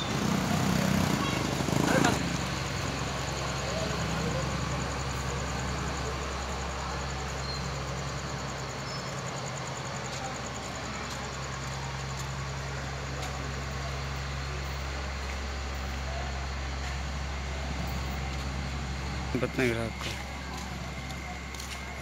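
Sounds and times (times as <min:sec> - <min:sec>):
engine humming: 0:00.0 - 0:22.0.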